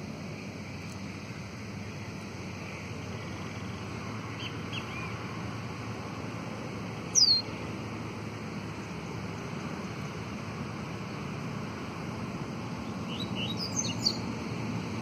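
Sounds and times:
bird soft short calls: 7.1s - 7.5s.

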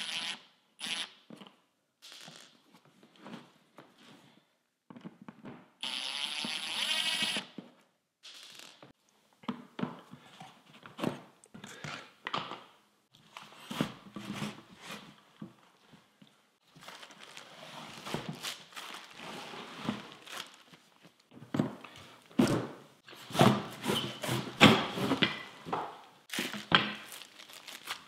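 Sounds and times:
cordless drill running: 0.0s - 1.1s, 5.8s - 7.5s
plastic wrap crinkling: 16.6s - 21.3s, 26.3s - 28.0s
knocks and scrapes: 21.5s - 26.6s.

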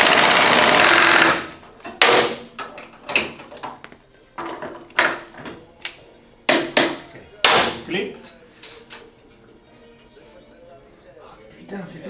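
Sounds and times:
impact wrench rattling: 0.0s - 1.5s.

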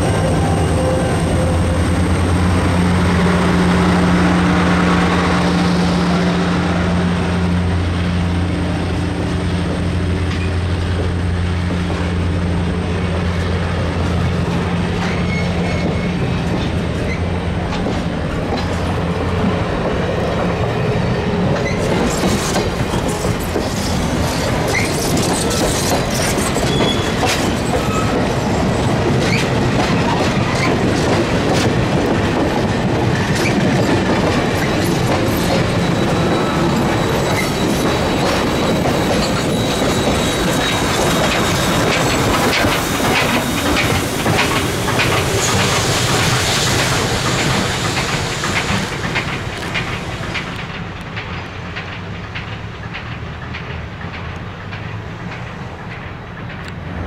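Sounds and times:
train wheels clacking over rail joints: 0.0s - 57.0s
wheel squeals: 15.0s - 16.3s, 21.6s - 30.8s, 33.4s - 50.5s.

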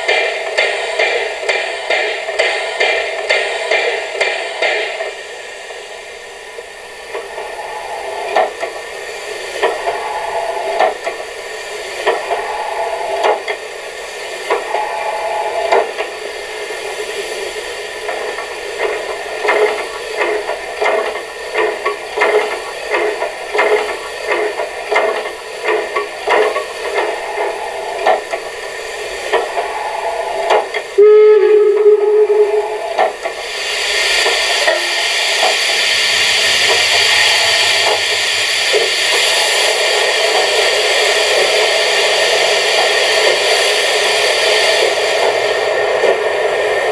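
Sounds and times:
steam locomotive chuffs from speaker: 0.0s - 46.9s
train whistle blast: 14.7s - 15.8s, 29.6s - 33.0s.

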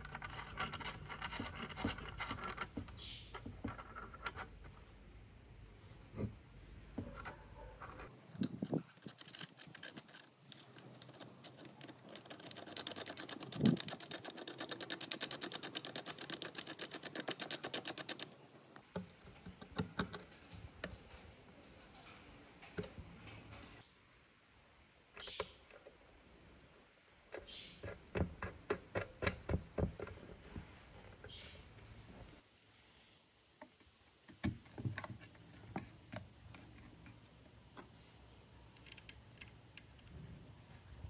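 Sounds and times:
rapid even clicking: 8.3s - 18.4s.

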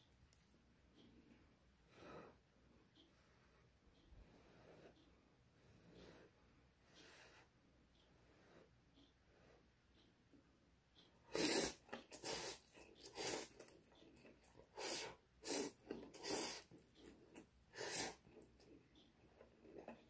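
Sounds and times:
person slurping noodles: 11.3s - 13.7s, 14.8s - 16.7s, 17.7s - 18.2s
chewing: 11.4s - 20.0s.

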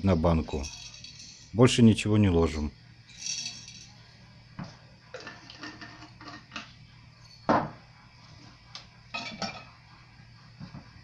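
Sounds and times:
glass jars and metal lids clinking: 0.5s - 1.5s, 3.1s - 3.9s, 5.1s - 7.8s, 9.1s - 9.7s.

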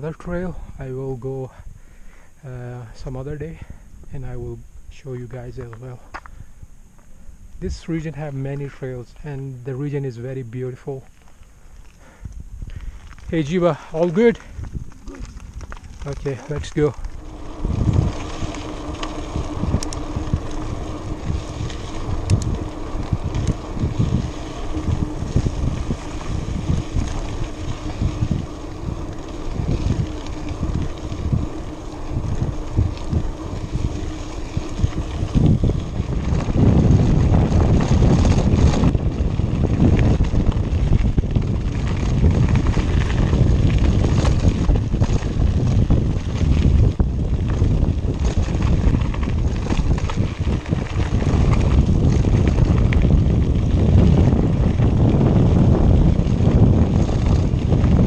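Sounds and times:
faint steady hum: 0.0s - 58.0s
wind buffeting microphone: 11.6s - 58.0s.

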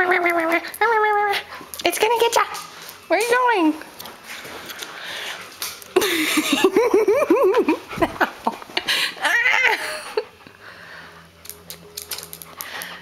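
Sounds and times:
person giggling: 6.0s - 10.4s.

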